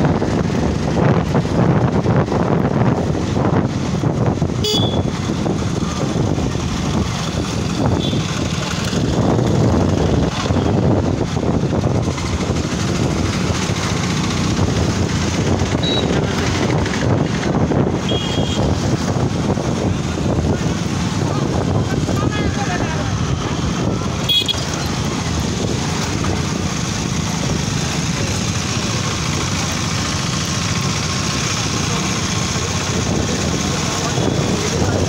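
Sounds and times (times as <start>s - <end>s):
motorcycle engine running: 0.0s - 35.0s
high horn toots: 4.6s - 5.1s, 18.0s - 18.7s, 24.2s - 24.7s.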